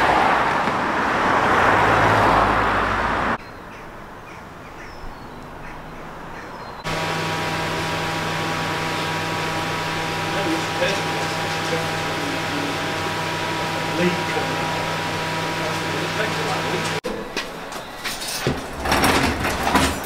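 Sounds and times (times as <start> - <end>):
car passing close by: 0.0 - 3.4
steady hum with tones: 6.9 - 17.0.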